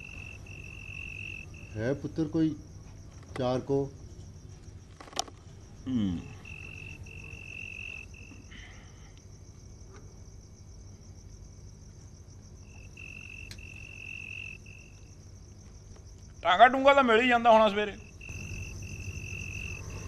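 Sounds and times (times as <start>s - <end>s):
crickets chirping: 0.0s - 20.0s
faint high insect trill: 0.0s - 20.0s.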